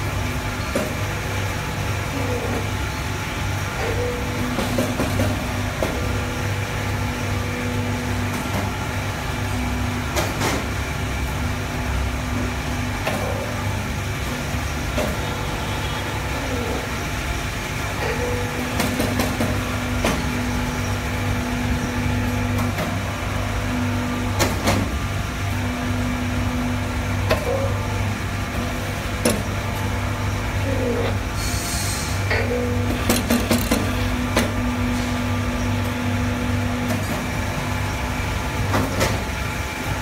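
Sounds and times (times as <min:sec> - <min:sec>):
hydraulic pump humming: 0:00.0 - 0:40.0
sharp clicks and knocks: 0:32.3 - 0:34.6.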